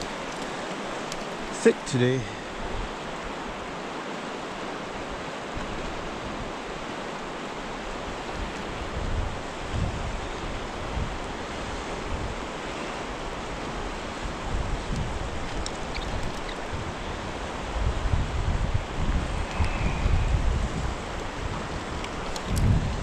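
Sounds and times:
river flowing over rocks: 0.0s - 14.6s
wind buffeting microphone: 7.9s - 23.0s.

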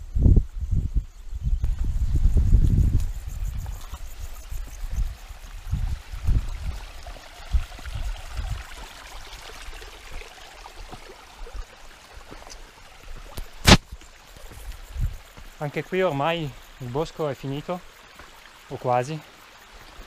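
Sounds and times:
mountain stream running: 2.9s - 20.0s
sharp click: 13.4s - 13.9s.

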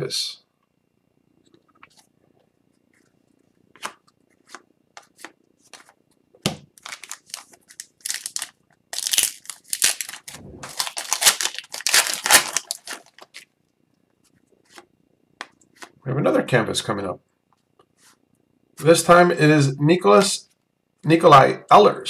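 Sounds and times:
foil wrapper crinkling and tearing: 6.8s - 13.5s.

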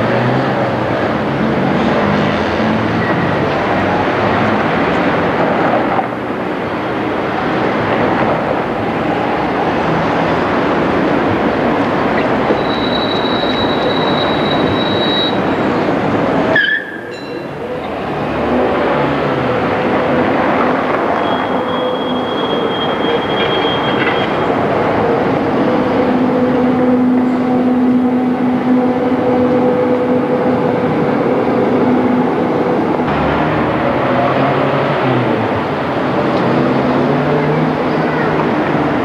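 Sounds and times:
street traffic: 0.0s - 39.0s
tram rumbling along track: 0.0s - 39.0s
high wheel squeal: 12.2s - 15.7s, 16.5s - 17.9s, 21.1s - 24.6s.

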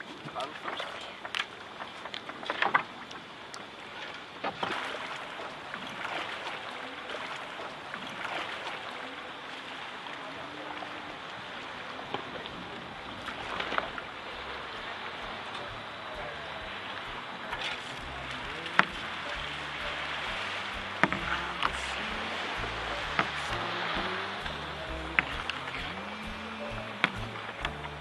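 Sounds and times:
paddle strokes splashing: 0.0s - 28.0s
water noise: 0.0s - 28.0s
wind: 0.0s - 28.0s.

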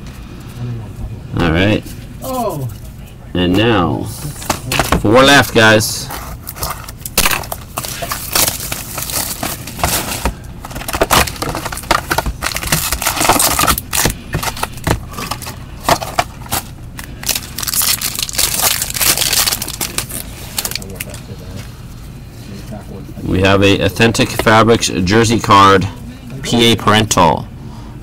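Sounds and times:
plastic wrapper tearing and crinkling: 6.4s - 21.2s.

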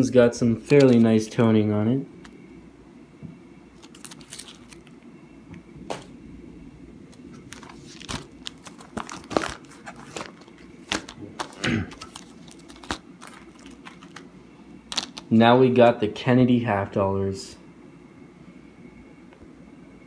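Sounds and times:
plastic sleeves crinkling: 0.6s - 1.4s, 3.8s - 5.1s, 7.1s - 14.3s, 14.9s - 15.3s.

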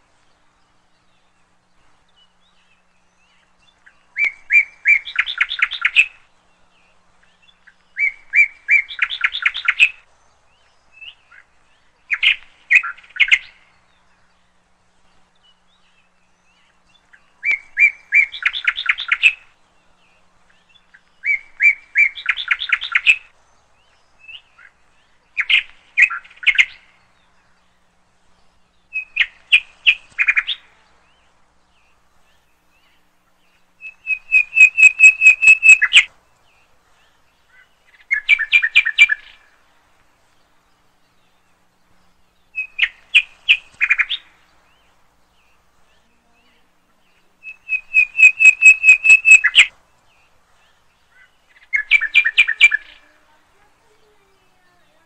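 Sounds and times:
bird singing high notes: 33.8s - 36.1s, 47.4s - 49.7s.

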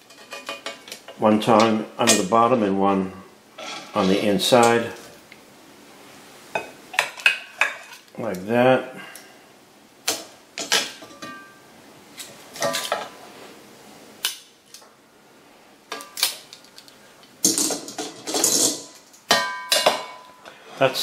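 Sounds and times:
metal tongs clanking on iron pot: 0.0s - 2.3s.

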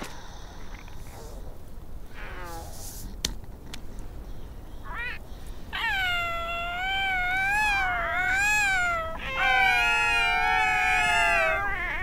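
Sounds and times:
cartoon seal pup calls: 4.9s - 12.0s.

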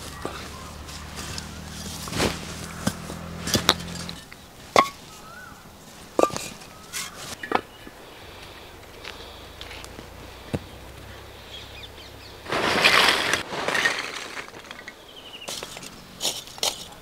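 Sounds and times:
charcoal lumps clattering: 0.2s - 5.2s, 6.0s - 7.6s, 12.3s - 17.0s.

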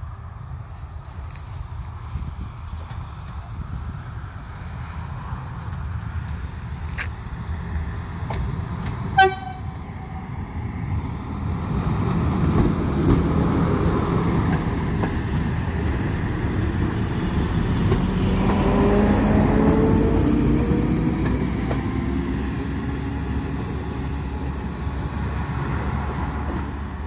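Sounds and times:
diesel railcar rumbling past: 0.0s - 27.0s
train horn toot: 9.2s - 9.8s.

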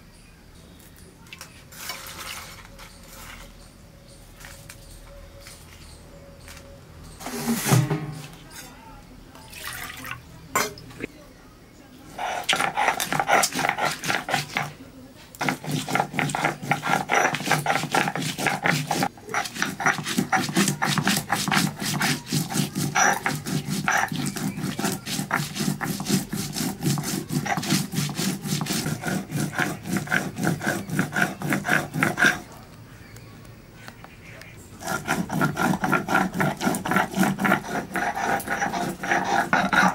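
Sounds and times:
stone roller grinding on stone slab: 7.2s - 8.7s, 12.2s - 14.8s, 15.4s - 32.6s, 34.8s - 39.9s.

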